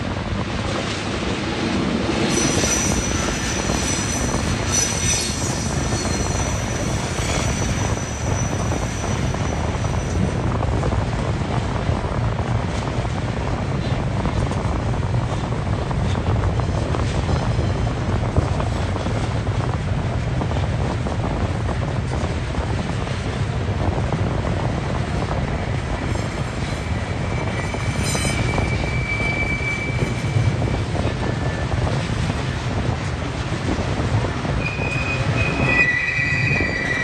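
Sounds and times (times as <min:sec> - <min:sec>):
freight train rumbling past: 0:00.0 - 0:37.0
wheels clattering on rail: 0:00.0 - 0:37.0
high-pitched squeal: 0:02.2 - 0:10.2, 0:26.8 - 0:30.7, 0:34.6 - 0:37.0.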